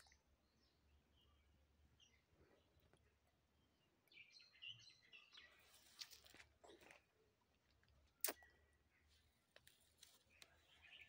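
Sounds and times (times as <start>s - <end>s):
faint bird chirps: 10.1s - 11.0s.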